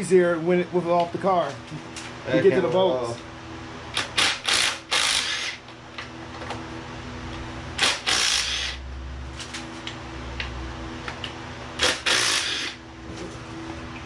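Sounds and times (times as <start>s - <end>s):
steady low hum: 0.0s - 14.0s
cordless impact driver running: 4.0s - 5.6s, 7.8s - 8.8s, 11.8s - 12.8s.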